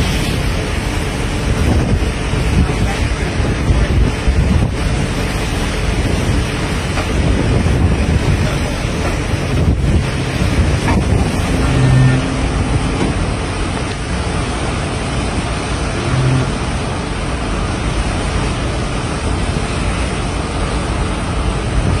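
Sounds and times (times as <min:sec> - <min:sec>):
sea water rushing from ship: 0:00.0 - 0:22.0
wind on microphone: 0:00.0 - 0:22.0
brief low hum: 0:16.0 - 0:16.7.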